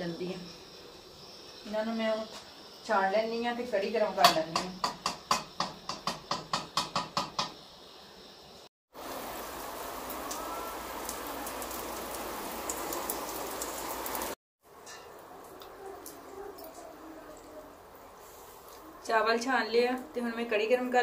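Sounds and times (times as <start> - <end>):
rain on concrete floor: 8.9 - 21.0.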